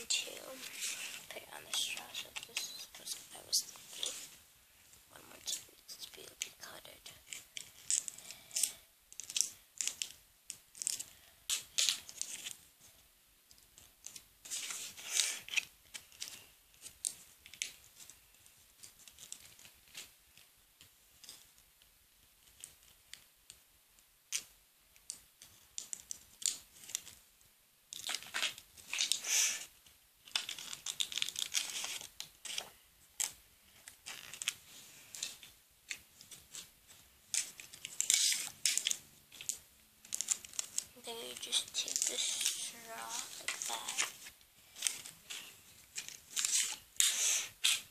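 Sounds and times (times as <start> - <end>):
paper rustling: 0.0 - 4.4, 27.9 - 47.9.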